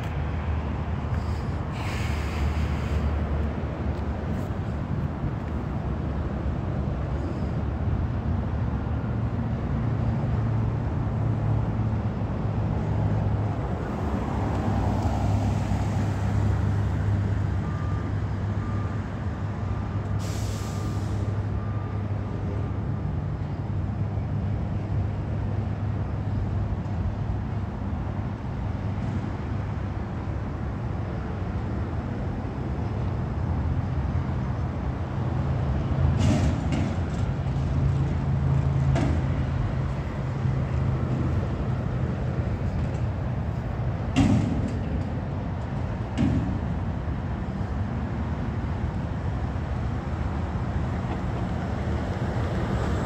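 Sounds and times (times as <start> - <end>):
air brake hiss: 1.2 - 3.2, 20.2 - 21.4.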